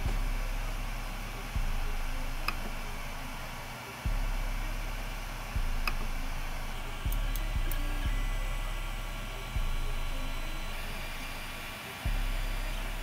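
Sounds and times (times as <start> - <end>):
soft low thumps: 0.0 - 0.6, 4.1 - 4.8
cooling fans whirring: 0.0 - 13.0.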